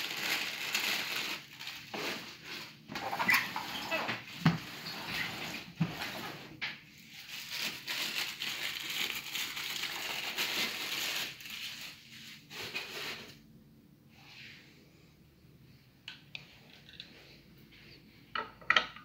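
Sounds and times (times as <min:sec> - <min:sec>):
plastic wrapping crinkling: 0:00.0 - 0:06.3, 0:07.0 - 0:13.4.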